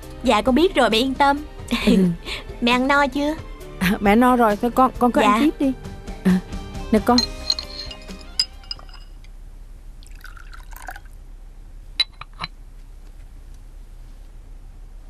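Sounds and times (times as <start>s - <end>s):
low room hum: 5.2s - 15.0s
porcelain clinks: 7.0s - 9.2s, 12.0s - 12.6s
tea pouring into a cup: 10.0s - 11.2s.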